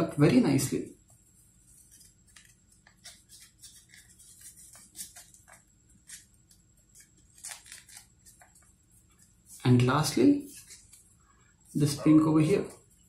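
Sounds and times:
paper crinkling and rustling: 0:01.7 - 0:09.8.

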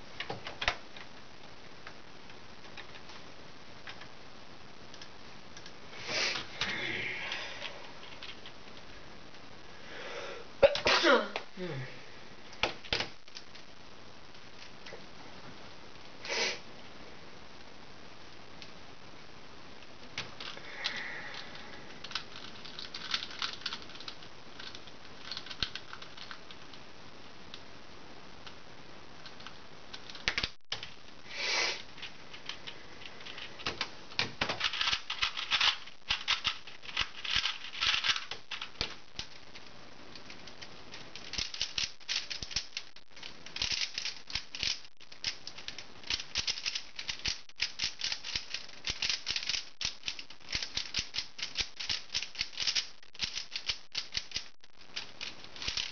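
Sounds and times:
plastic puzzle cube clattering: 0:21.3 - 0:26.5, 0:29.9 - 0:31.0, 0:32.0 - 0:39.6, 0:40.2 - 0:55.9.

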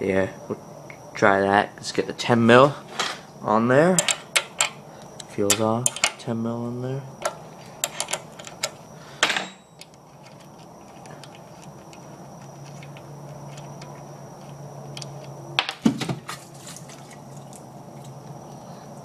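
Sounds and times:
steady low hum: 0:00.0 - 0:19.0
wrench clinking on metal: 0:09.2 - 0:09.8.

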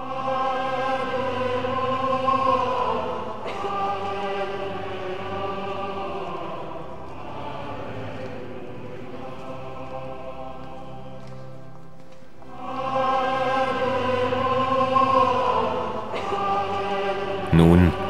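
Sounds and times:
choir singing sacred music: 0:00.0 - 0:18.0.

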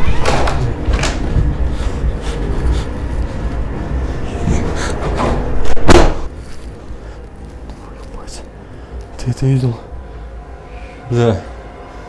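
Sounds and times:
low rumble: 0:00.0 - 0:12.0
loud bang: 0:04.5 - 0:06.3.

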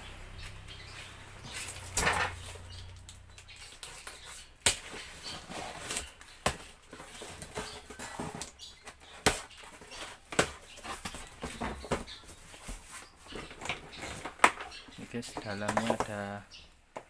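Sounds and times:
cardboard flaps rustling: 0:03.7 - 0:16.3.

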